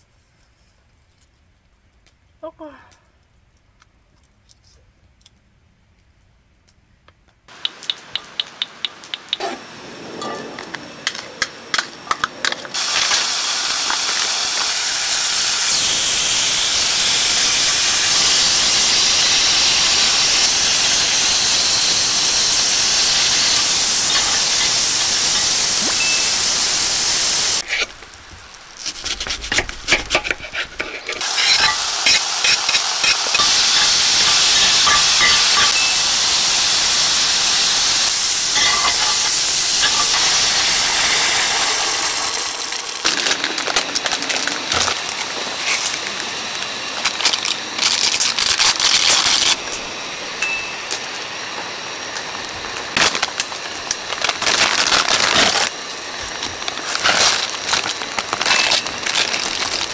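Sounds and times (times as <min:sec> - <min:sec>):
clicks and taps: 0:07.1 - 0:09.4
dumplings sizzling in hot oil: 0:12.7 - 0:59.9.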